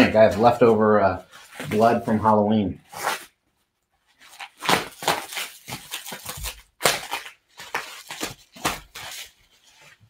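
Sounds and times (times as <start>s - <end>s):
plastic wrap crinkling: 4.0s - 10.0s.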